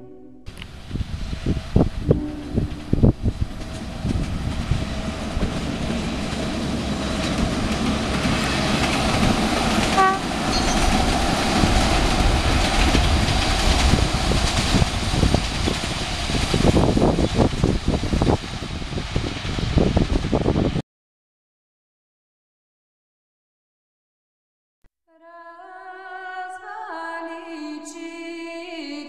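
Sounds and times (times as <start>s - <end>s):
brief high note: 0.0s - 0.6s
diesel locomotive running: 0.0s - 20.8s
train coaches rolling on track: 0.5s - 20.8s.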